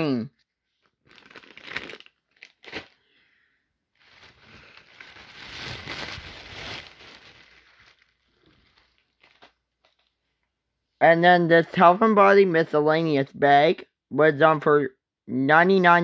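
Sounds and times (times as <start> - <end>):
plastic bags rustling: 0.8 - 3.0, 3.9 - 10.1.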